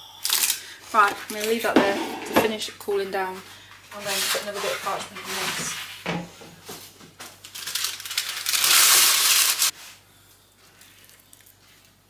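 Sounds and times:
parchment paper crinkling: 0:07.2 - 0:09.7.

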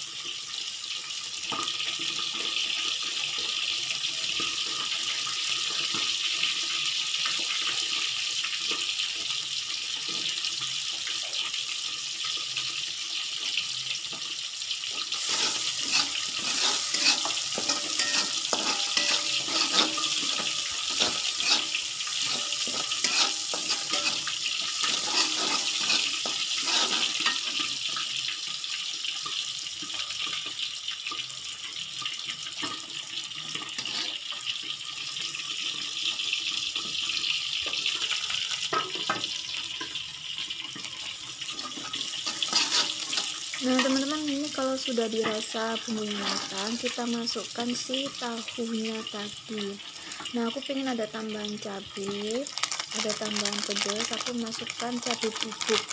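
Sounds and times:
aromatics sizzling in a wok: 0:00.0 - 0:55.9
metal spatula scraping wok: 0:14.9 - 0:28.0, 0:33.7 - 0:34.4, 0:41.4 - 0:47.1.

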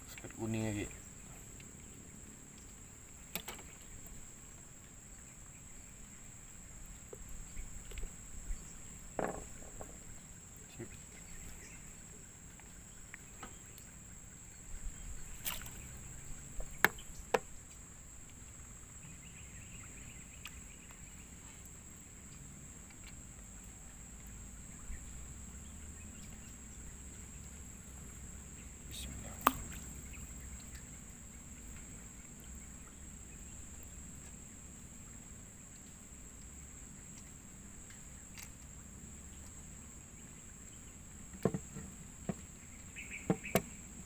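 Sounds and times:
fishing gear knocking in a canoe: 0:09.1 - 0:10.0, 0:16.4 - 0:17.6, 0:29.3 - 0:30.0, 0:41.3 - 0:42.5, 0:43.2 - 0:43.8.

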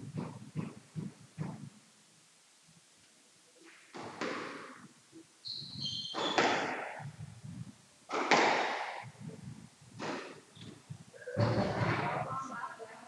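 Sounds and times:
squash ball hitting walls: 0:00.0 - 0:01.7, 0:03.7 - 0:04.9, 0:05.8 - 0:07.2, 0:08.1 - 0:09.2, 0:10.0 - 0:10.5
shoe squeak on court floor: 0:05.5 - 0:06.9.

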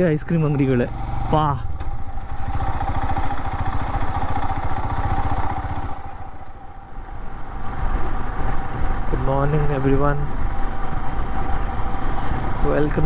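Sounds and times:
motorcycle engine thumping: 0:00.5 - 0:06.6.

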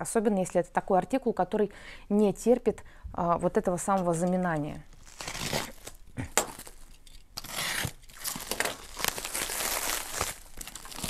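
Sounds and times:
plastic wrap crinkling and tearing: 0:04.9 - 0:11.0
knife slitting a parcel: 0:05.1 - 0:06.8, 0:07.4 - 0:11.0.

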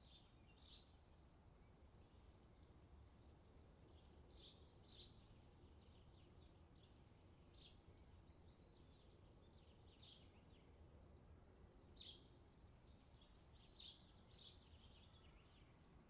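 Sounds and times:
small birds chirping: 0:11.9 - 0:16.0.

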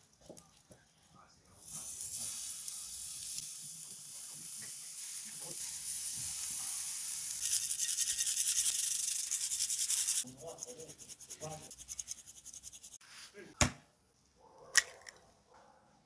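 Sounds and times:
burger patties sizzling on grill: 0:01.6 - 0:10.2.

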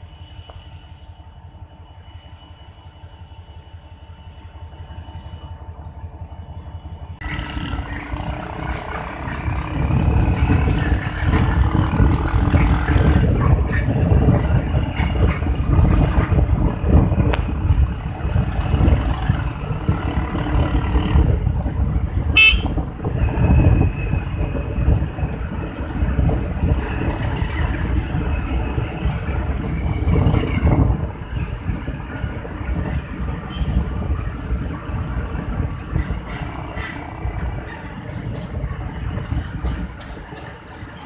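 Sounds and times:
motorcycle engine running: 0:07.2 - 0:21.5
wind rushing over microphone: 0:07.2 - 0:41.0
vehicle horn toot: 0:22.3 - 0:22.8.

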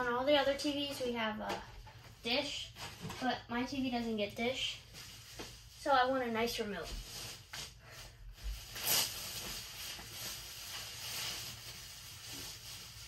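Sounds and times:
plastic wrap rustling: 0:00.0 - 0:13.0.

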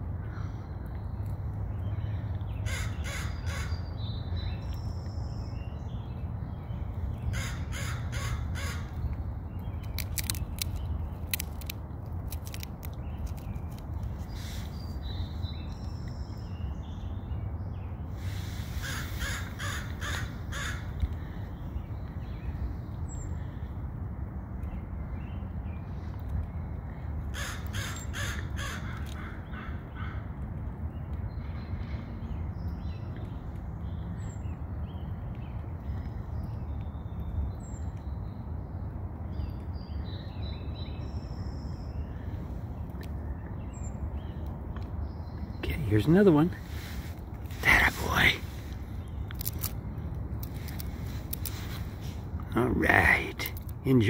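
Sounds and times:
steady low rumble: 0:00.0 - 0:27.4, 0:28.4 - 0:54.0
crow cawing: 0:02.6 - 0:03.8, 0:07.3 - 0:08.9, 0:18.8 - 0:20.9, 0:27.3 - 0:30.2.

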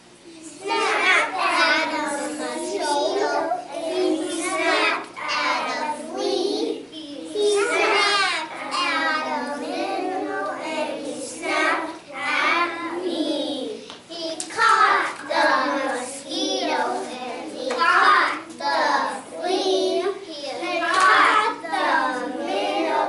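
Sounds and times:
children singing: 0:07.4 - 0:13.6, 0:20.8 - 0:23.0.

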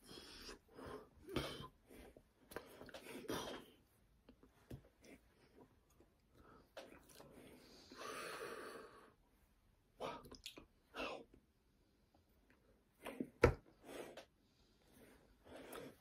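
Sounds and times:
person breathing: 0:06.3 - 0:09.2
soft mouth sounds: 0:10.0 - 0:11.4.

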